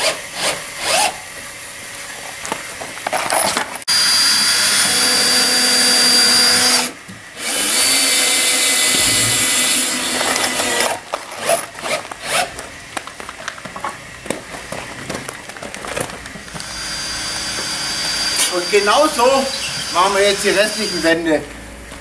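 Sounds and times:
cordless drill motor whine: 0:03.4 - 0:12.6, 0:16.5 - 0:21.4.

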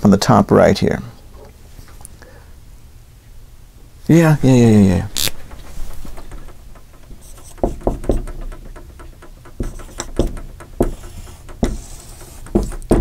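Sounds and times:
marker writing on a whiteboard: 0:05.2 - 0:13.0.

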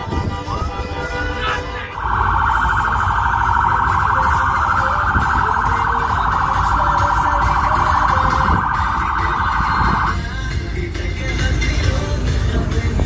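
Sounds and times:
low traffic rumble: 0:00.0 - 0:13.0
electronic siren warbling: 0:02.0 - 0:10.2.

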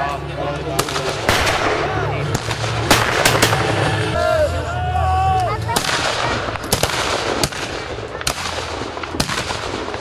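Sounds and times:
muskets firing: 0:00.7 - 0:04.1, 0:05.8 - 0:10.0.

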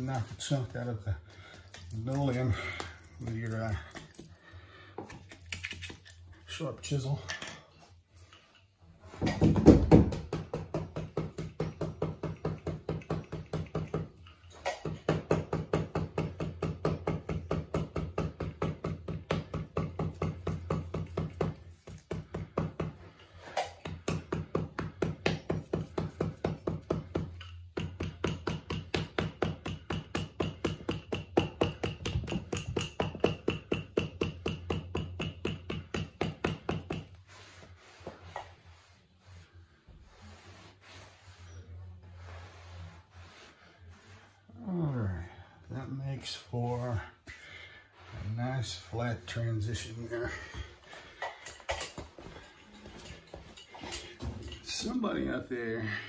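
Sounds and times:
hammer tapping rapidly: 0:09.5 - 0:14.2.

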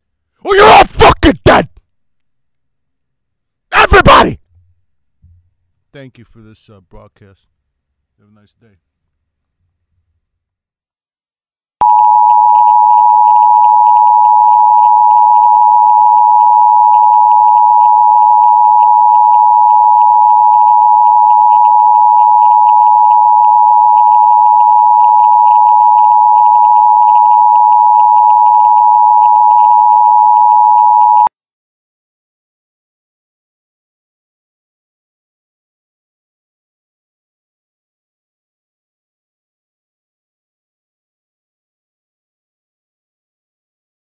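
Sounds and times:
electronic tone: 0:11.8 - 0:31.3.

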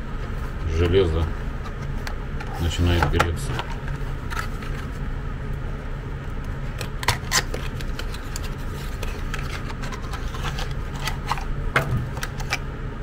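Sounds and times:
cardboard rubbing and scraping: 0:07.2 - 0:11.4.

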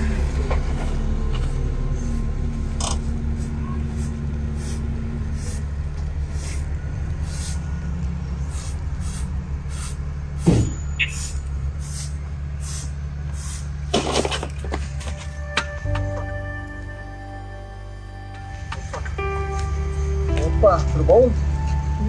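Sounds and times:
steady low hum: 0:00.0 - 0:22.0
broom scraping concrete: 0:03.2 - 0:07.7.

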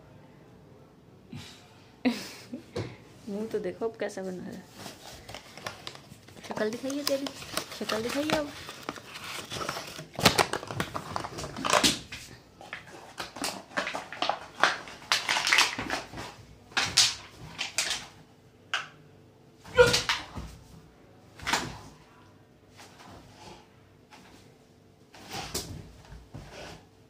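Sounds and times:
plastic bottle crinkling: 0:04.8 - 0:18.1.

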